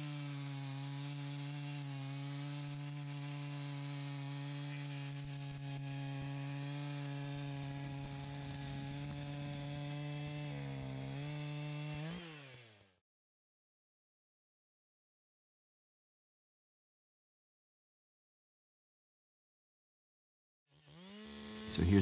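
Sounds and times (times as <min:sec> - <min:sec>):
chainsaw cutting log: 0:00.0 - 0:13.0, 0:20.7 - 0:22.0.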